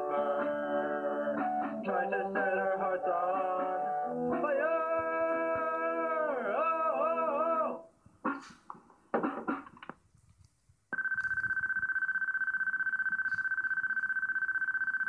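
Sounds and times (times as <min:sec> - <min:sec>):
long electronic beep: 0:11.0 - 0:15.0.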